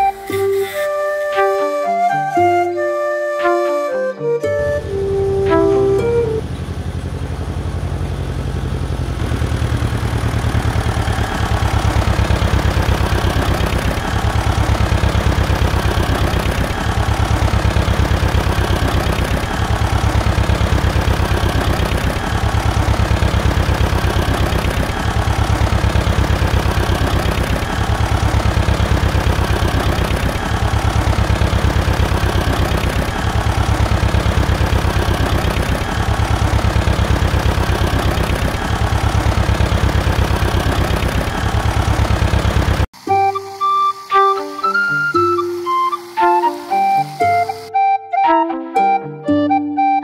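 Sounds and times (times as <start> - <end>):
flute music: 0.0 - 6.6, 43.0 - 50.0
diesel engine idling: 4.6 - 47.7.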